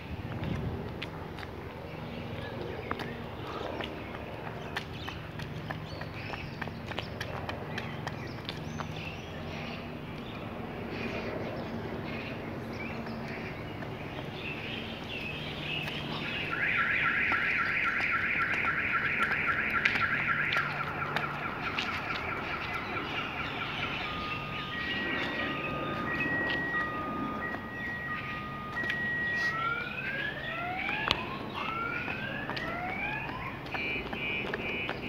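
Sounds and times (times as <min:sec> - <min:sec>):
car alarm: 0:15.8 - 0:35.0.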